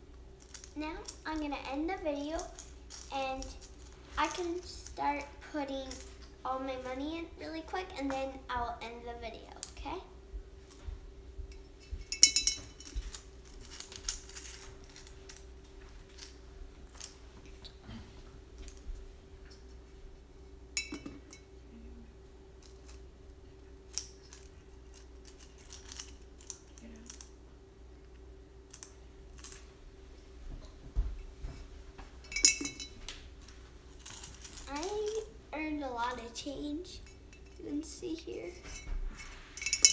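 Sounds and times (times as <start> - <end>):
coins clinking: 0.4 - 1.2, 2.3 - 4.5, 5.8 - 6.3, 12.0 - 17.2, 20.8 - 21.4, 23.9 - 27.4, 28.7 - 29.7, 32.3 - 35.3, 38.6 - 39.9.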